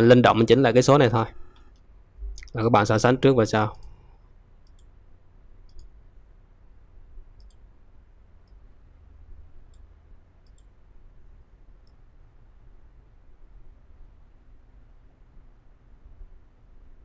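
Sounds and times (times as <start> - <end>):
faint low hum: 0.0 - 17.0
computer mouse clicking: 3.7 - 4.9, 5.7 - 5.9, 7.4 - 7.6, 9.7 - 10.7.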